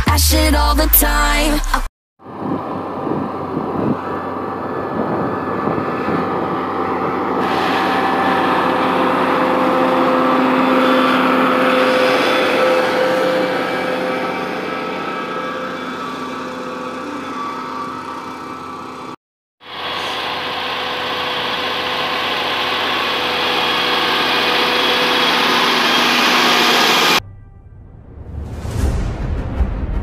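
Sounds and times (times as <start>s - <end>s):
tractor diesel engine under load: 2.2s - 27.2s.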